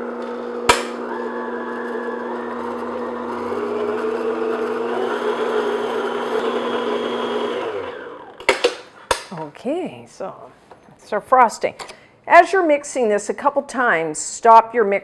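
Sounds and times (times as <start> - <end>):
stand mixer running: 0.0 - 8.5.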